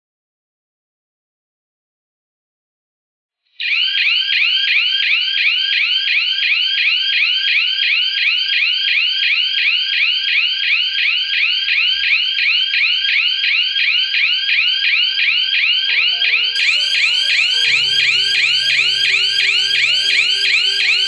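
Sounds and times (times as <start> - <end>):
electronic siren whooping: 15.2 - 21.0.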